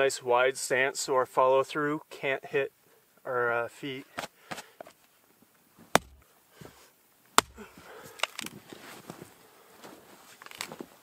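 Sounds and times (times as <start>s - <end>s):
hatchet splitting firewood: 5.9s - 6.3s, 7.4s - 8.6s.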